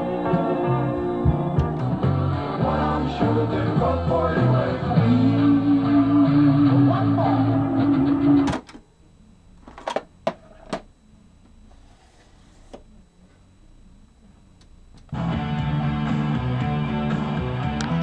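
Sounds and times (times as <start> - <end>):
guitar music from stereo: 0.0 - 8.5, 15.1 - 18.0.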